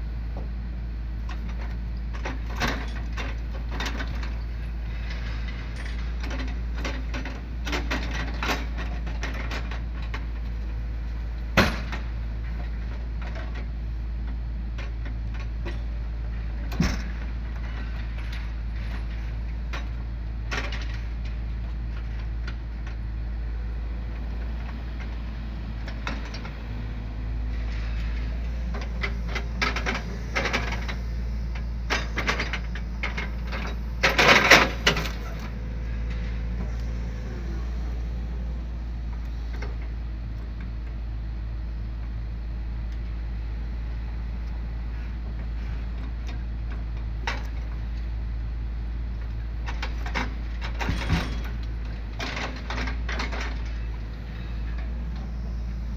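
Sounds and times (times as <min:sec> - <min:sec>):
excavator diesel engine running: 0:00.0 - 0:55.9
knocks and clunks of wood: 0:11.6 - 0:13.7, 0:49.7 - 0:51.6.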